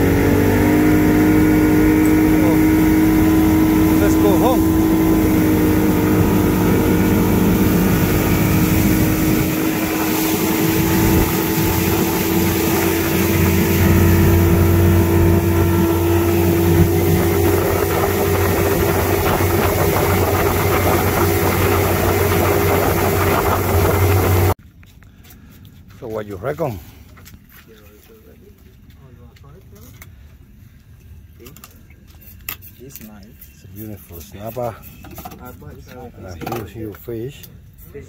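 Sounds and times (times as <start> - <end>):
outboard motor running: 0.0 - 24.6
water washing along hull: 0.0 - 24.6.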